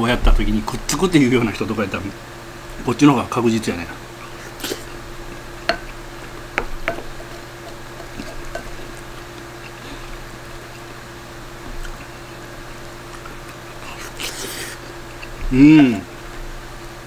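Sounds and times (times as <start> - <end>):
wet chewing: 4.2 - 15.6.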